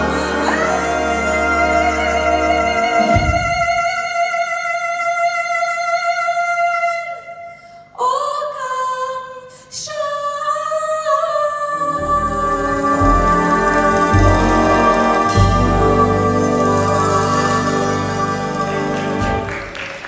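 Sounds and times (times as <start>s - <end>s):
big band playing: 11.8s - 20.0s.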